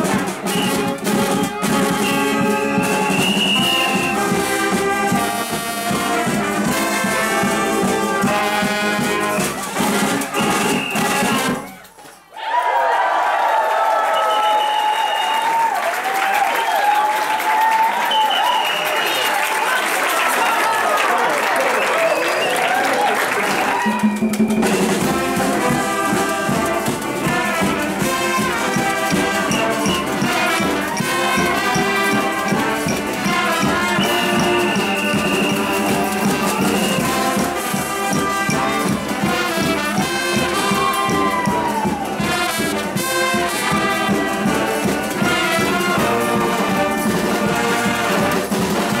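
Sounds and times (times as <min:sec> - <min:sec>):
brass ensemble playing: 0:00.0 - 0:11.8, 0:23.4 - 0:49.0.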